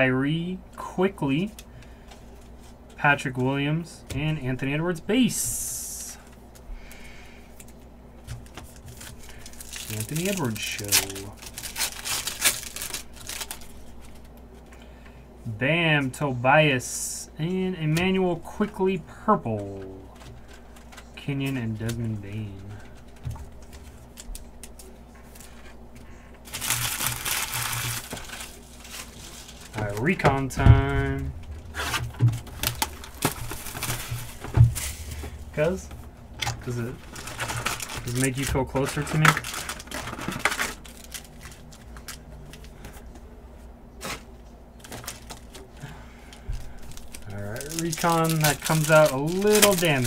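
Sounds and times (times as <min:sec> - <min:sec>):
plastic wrapping crinkling: 0:07.6 - 0:14.6, 0:19.7 - 0:43.1, 0:44.0 - 0:50.0.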